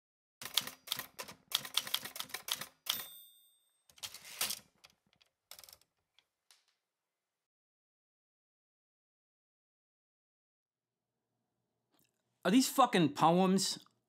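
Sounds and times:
typewriter keys clacking: 0:00.4 - 0:03.1
typewriter bell ding: 0:02.9 - 0:03.9.

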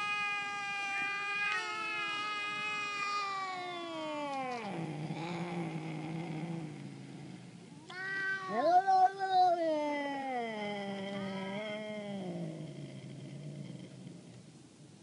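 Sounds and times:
cat yowling and growling: 0:00.0 - 0:06.7, 0:07.9 - 0:12.5.

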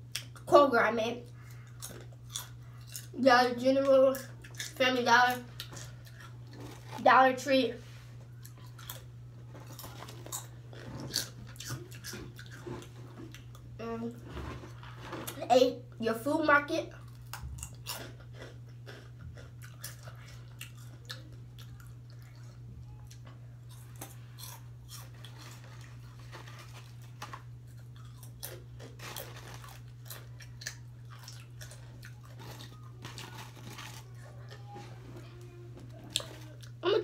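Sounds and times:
chewing crunchy chips: 0:00.0 - 0:00.5, 0:01.1 - 0:07.2, 0:08.2 - 0:15.4, 0:16.9 - 0:37.0
steady low hum: 0:00.0 - 0:37.0.

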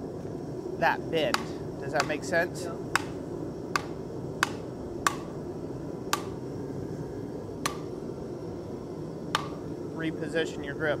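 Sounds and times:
mallet striking hot metal: 0:01.2 - 0:05.4, 0:06.0 - 0:06.4, 0:07.6 - 0:07.9, 0:09.3 - 0:09.7.

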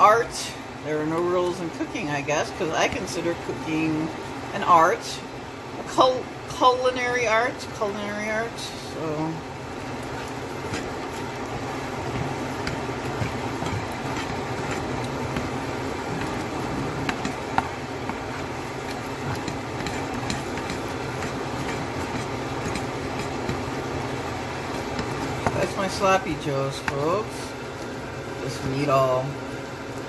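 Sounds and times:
spatula scraping a skillet: 0:09.8 - 0:26.2
spatula tapping a pan: 0:12.0 - 0:23.8, 0:24.6 - 0:25.6.

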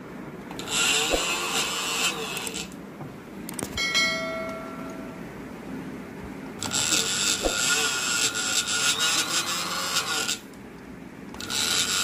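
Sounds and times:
sewing machine motor whirring: 0:00.5 - 0:02.8, 0:06.6 - 0:10.4, 0:11.3 - 0:12.0
bell-like ding: 0:03.8 - 0:05.2.

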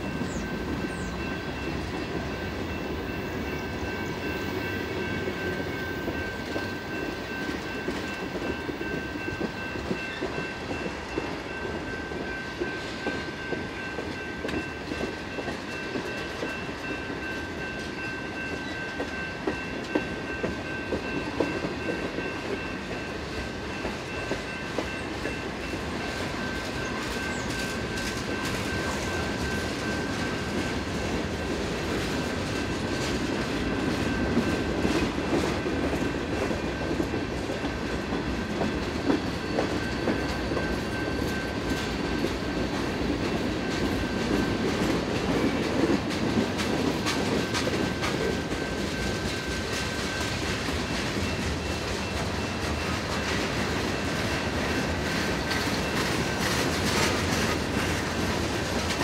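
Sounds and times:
crossing signal bell ringing: 0:00.0 - 0:59.0
train wheels rumbling on rail: 0:00.0 - 0:59.0
wheels clicking over rail joints: 0:23.8 - 0:59.0.

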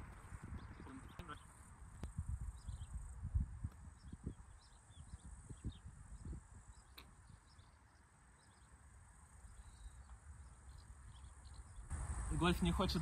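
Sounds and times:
wind rumble on microphone: 0:00.0 - 0:07.8.

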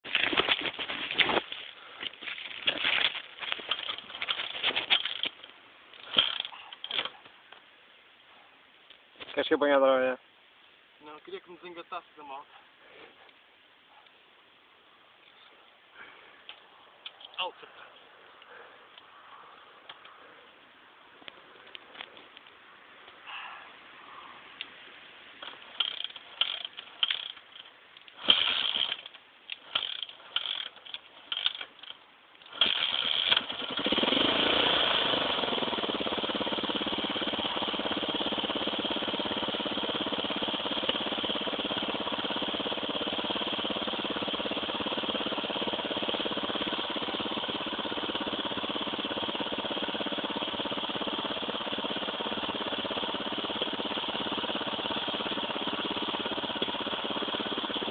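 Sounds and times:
dirt bike engine starting and idling: 0:00.0 - 0:07.6, 0:25.3 - 0:57.9.

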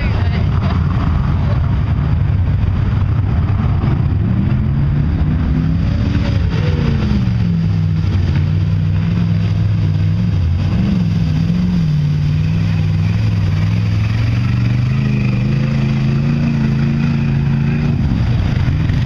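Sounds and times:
low rumble: 0:00.0 - 0:19.0
pickup truck engine revving: 0:00.0 - 0:19.0.

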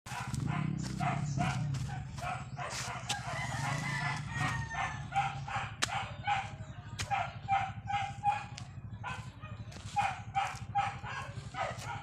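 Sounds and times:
rooster crowing: 0:03.0 - 0:05.2.

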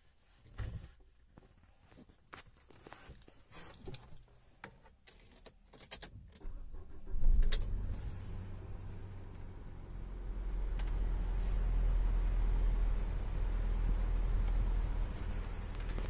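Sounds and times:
car engine starting and idling: 0:06.3 - 0:16.0.

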